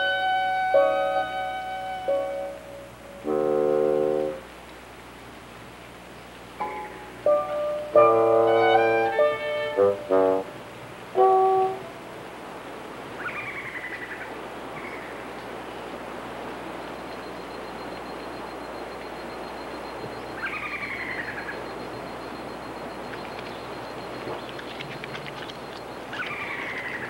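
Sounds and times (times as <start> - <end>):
faint high whine: 0.0 - 27.0
steady forest hiss: 0.0 - 27.0
wild animal calling: 13.2 - 15.3, 20.3 - 21.7, 23.3 - 27.0.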